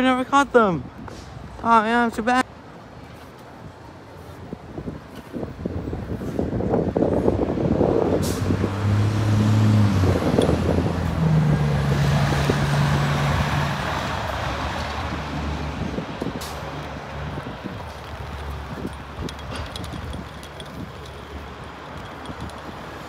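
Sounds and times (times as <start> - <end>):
vehicle driving past: 8.1 - 15.9.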